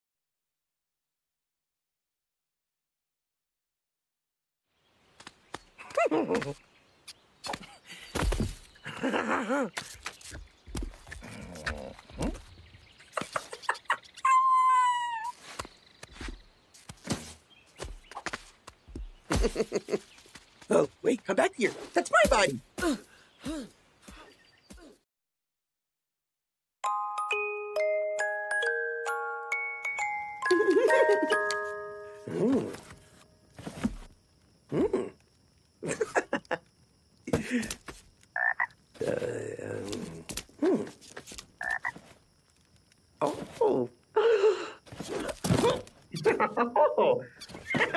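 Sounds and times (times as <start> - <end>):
vocal grunts: 11.2 - 12.4, 32.3 - 32.9, 34.7 - 35.2, 39.0 - 41.0
cartoon frog croaking: 38.4 - 40.7, 41.6 - 42.0, 45.6 - 47.9.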